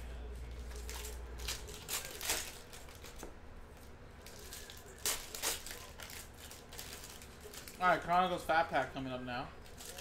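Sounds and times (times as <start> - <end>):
foil wrapper crinkling and tearing: 0.6 - 3.3, 4.2 - 9.0, 9.6 - 10.0.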